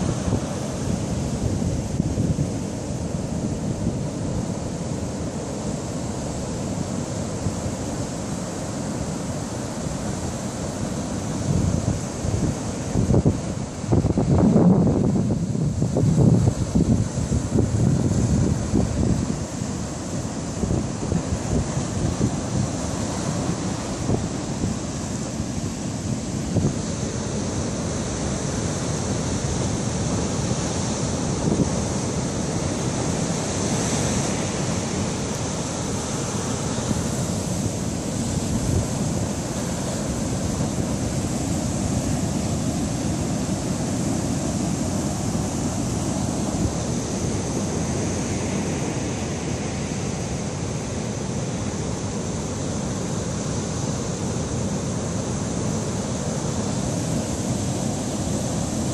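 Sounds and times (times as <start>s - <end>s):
storm surf breaking on rocks: 10.0s - 58.9s
wind buffeting microphone: 11.4s - 19.6s.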